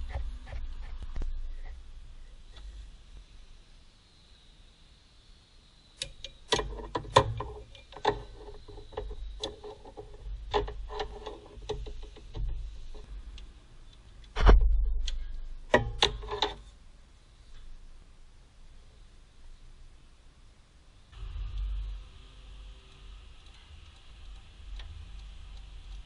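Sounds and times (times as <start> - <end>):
clicks and light knocks: 6.0 - 16.7.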